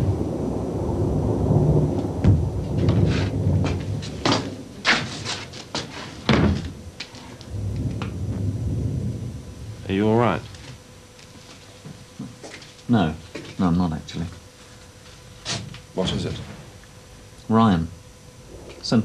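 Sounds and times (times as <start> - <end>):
low rumble of bombardment: 0.0 - 5.3, 6.2 - 11.2, 18.0 - 19.0.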